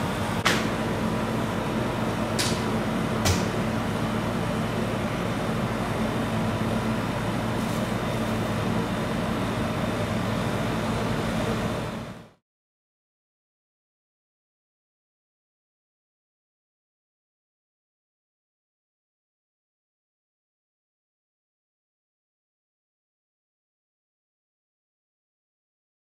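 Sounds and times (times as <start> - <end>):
machine hum: 0.0 - 12.4.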